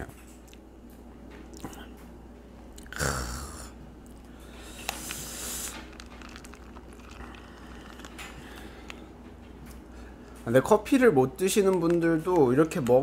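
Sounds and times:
person chewing: 0:02.7 - 0:09.1
mouth noise: 0:02.8 - 0:03.8.

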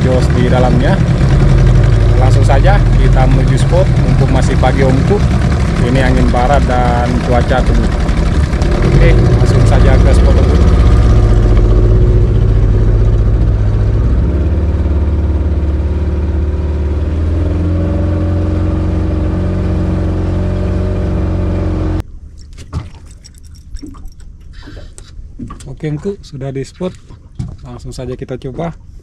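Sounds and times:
outboard motor running: 0:00.0 - 0:22.0.

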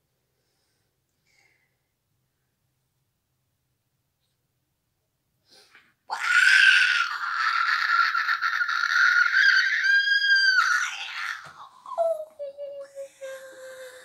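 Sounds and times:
high-pitched rasping scream: 0:06.1 - 0:12.0.

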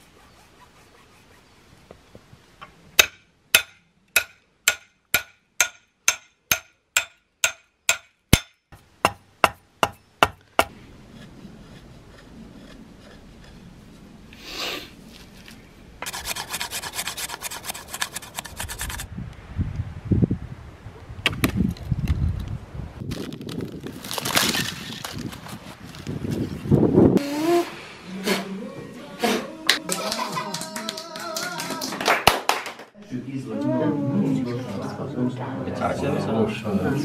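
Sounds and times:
hatchet chopping wood: 0:03.0 - 0:10.8
blade scraping wood: 0:10.6 - 0:14.0, 0:16.0 - 0:19.1.

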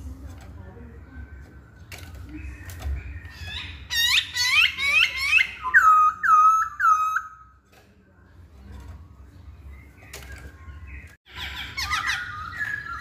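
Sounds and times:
bird singing whistled notes: 0:02.4 - 0:07.4, 0:11.8 - 0:13.0.

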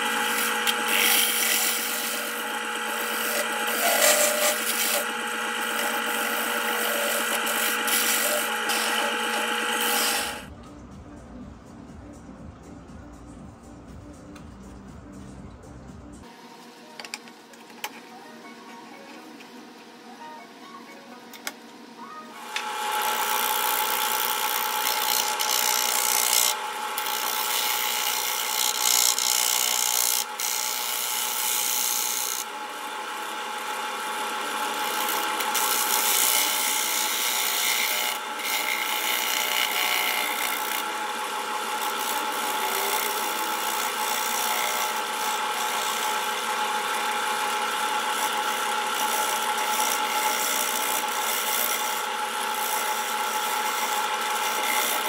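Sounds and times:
lathe whine: 0:00.0 - 0:10.5, 0:22.4 - 0:55.0
tool scraping wood on lathe: 0:00.0 - 0:10.5, 0:22.6 - 0:32.5, 0:34.3 - 0:55.0.

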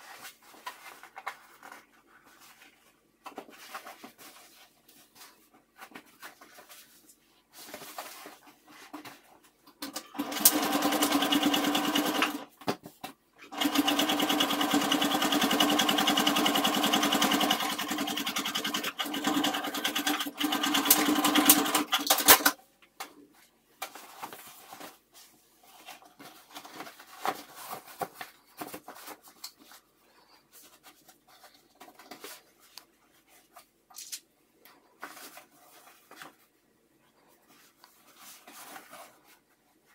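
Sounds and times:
sewing machine stitching: 0:09.9 - 0:12.5, 0:13.4 - 0:22.6
fabric rustling: 0:34.8 - 0:39.9.

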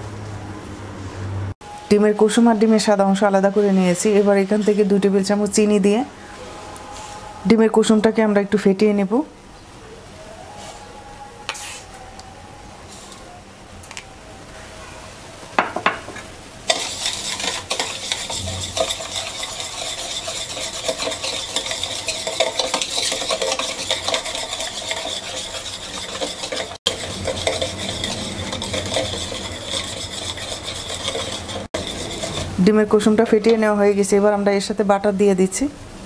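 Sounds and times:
whisk scraping plastic bowl: 0:16.7 - 0:33.0.

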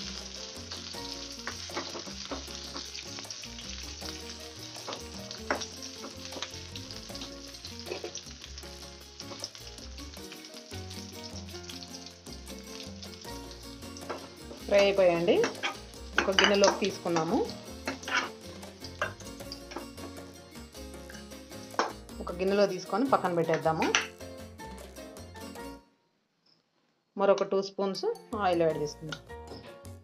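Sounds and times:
food sizzling in oil: 0:00.0 - 0:25.7
steel ladle scraping a pan: 0:07.8 - 0:08.2, 0:15.4 - 0:19.9.

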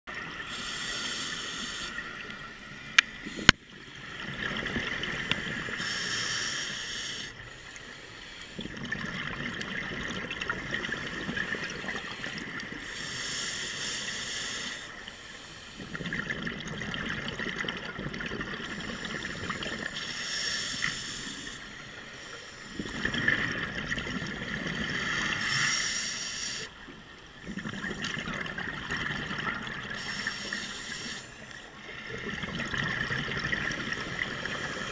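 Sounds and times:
regulator inhalation hiss: 0:00.4 - 0:02.3, 0:05.4 - 0:08.6, 0:10.9 - 0:16.0, 0:18.6 - 0:22.9, 0:25.0 - 0:26.8, 0:30.0 - 0:31.6
exhaled air bubbling: 0:08.6 - 0:13.2, 0:15.8 - 0:20.0, 0:22.7 - 0:25.6, 0:27.3 - 0:31.1, 0:31.8 - 0:34.9.

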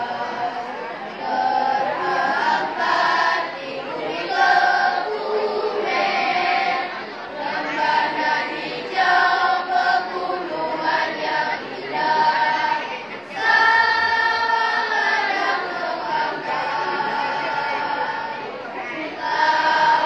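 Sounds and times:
choir singing sustained chords: 0:00.0 - 0:20.0.

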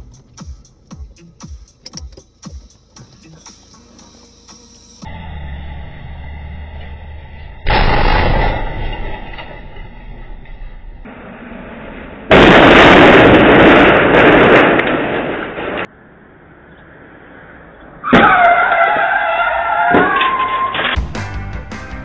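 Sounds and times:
car crash: 0:06.7 - 0:15.9, 0:18.0 - 0:21.2
car tyres squealing in a skid: 0:18.0 - 0:21.0.

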